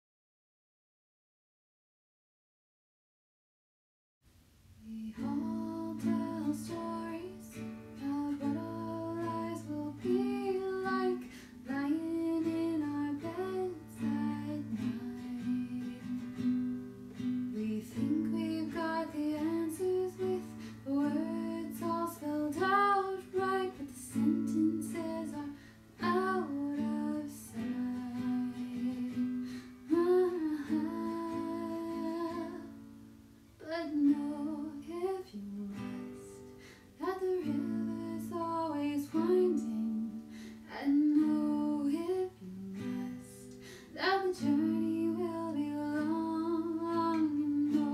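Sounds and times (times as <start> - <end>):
person singing slow song: 4.8 - 16.6, 17.5 - 32.8
acoustic guitar: 4.9 - 47.9.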